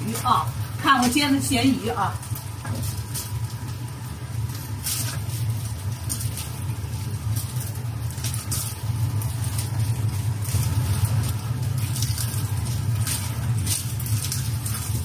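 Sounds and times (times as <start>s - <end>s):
fish frying in a pan: 0.0s - 15.0s
low machine hum: 0.0s - 15.0s.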